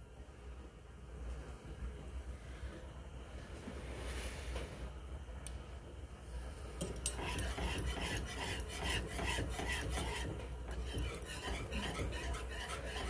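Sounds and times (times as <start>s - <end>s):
wire whisk scraping metal skillet: 6.8s - 13.0s.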